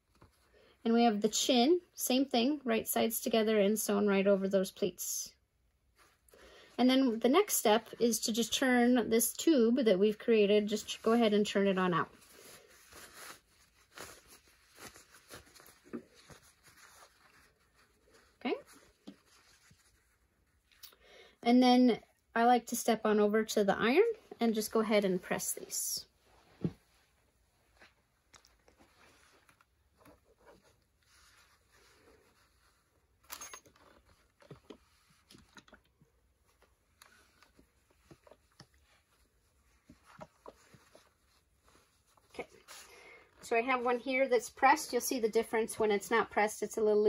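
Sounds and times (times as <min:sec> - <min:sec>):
fabric rustling and rubbing: 0:00.0 - 0:00.6, 0:05.8 - 0:06.4, 0:10.0 - 0:20.8, 0:23.6 - 0:45.5.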